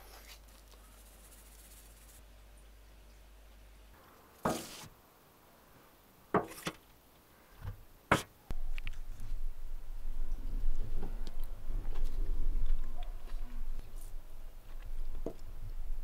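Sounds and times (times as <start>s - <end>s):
steady low rumble: 8.5s - 16.0s.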